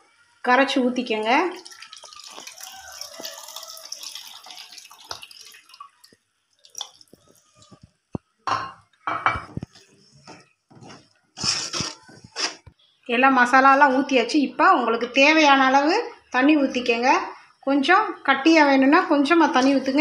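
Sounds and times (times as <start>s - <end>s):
water pouring into metal pan: 1.5s - 7.8s.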